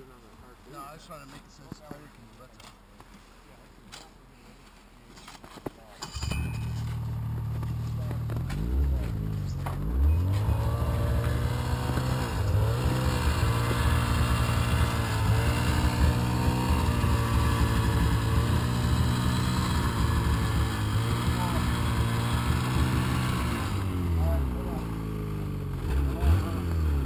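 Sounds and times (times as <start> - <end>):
snowmobile engine revving: 6.1 - 27.0.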